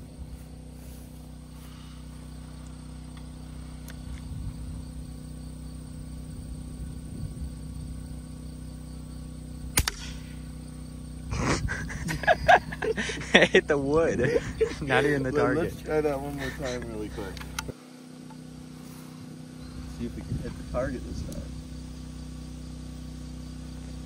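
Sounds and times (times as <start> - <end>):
faint background hum: 0.0 - 24.0
air rifle firing: 9.7 - 10.4.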